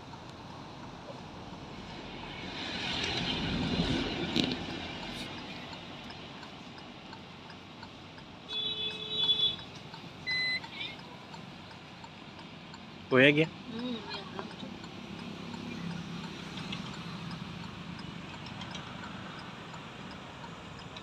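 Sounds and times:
vehicle passing: 0:01.5 - 0:06.0.

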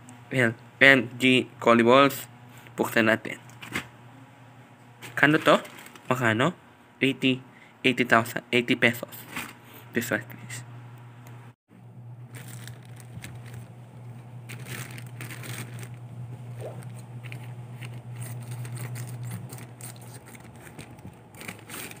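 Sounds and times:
plastic pouch crinkling: 0:05.3 - 0:06.1, 0:12.3 - 0:16.1, 0:16.8 - 0:22.0
low hum: 0:10.4 - 0:22.0
scissors cutting plastic: 0:16.8 - 0:22.0.

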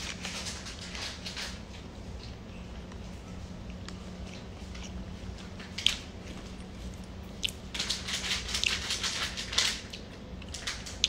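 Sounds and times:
plastic wrapper crinkling: 0:07.7 - 0:11.0.

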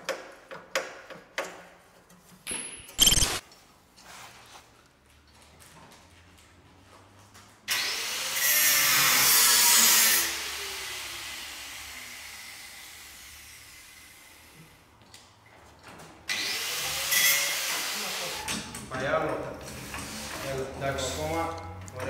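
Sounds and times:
angle grinder cutting sheet metal: 0:07.7 - 0:13.9, 0:16.3 - 0:18.4.

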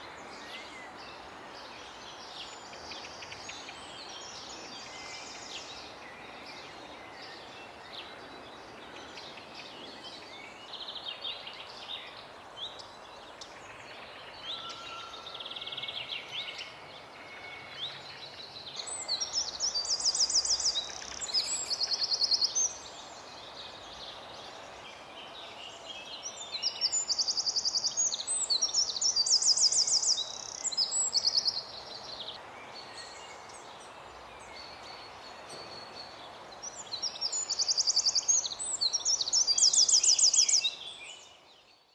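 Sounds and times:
faint birdsong: 0:00.0 - 0:41.9
wren singing high trills: 0:25.3 - 0:41.9.

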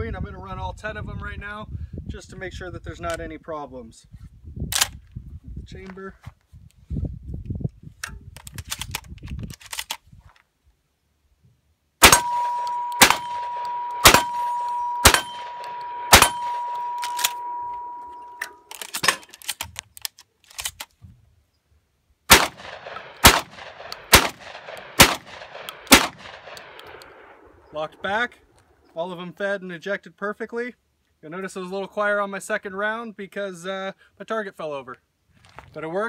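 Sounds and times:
metallic clicks of gun handling: 0:04.7 - 0:05.2, 0:08.0 - 0:10.5, 0:17.0 - 0:17.4, 0:18.1 - 0:21.0, 0:22.4 - 0:27.2
shotgun shots: 0:12.0 - 0:18.0, 0:22.3 - 0:27.4
steel target ringing: 0:12.0 - 0:19.2.

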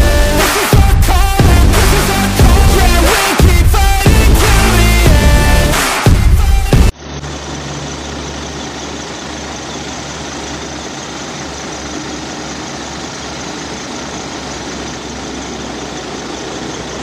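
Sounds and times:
bus diesel engine idling: 0:06.9 - 0:17.0.

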